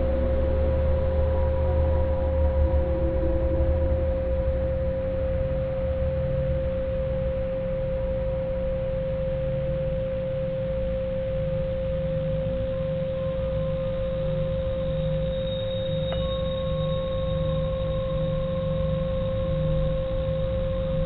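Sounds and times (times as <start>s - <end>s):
low wavering drone: 0.0s - 21.0s
steady pure tone: 0.0s - 21.0s.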